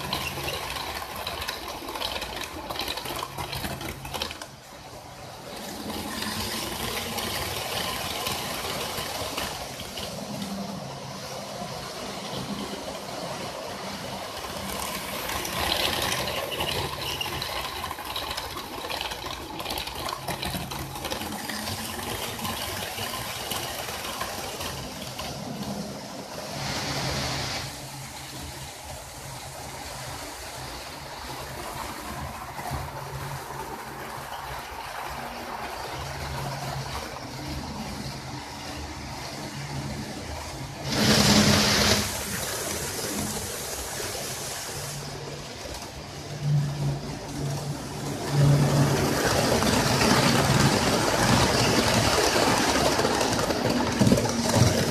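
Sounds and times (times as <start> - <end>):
model train wheels rattling: 0.0 - 54.9.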